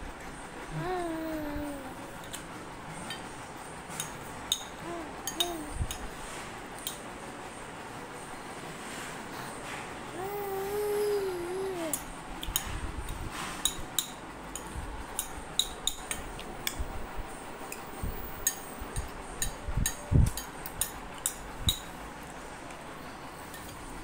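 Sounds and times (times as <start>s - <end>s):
baby cooing: 0.7s - 2.0s, 4.8s - 5.8s, 10.1s - 12.0s.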